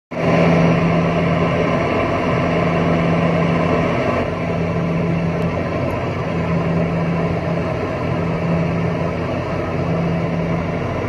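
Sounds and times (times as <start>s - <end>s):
low engine hum: 0.1s - 11.0s.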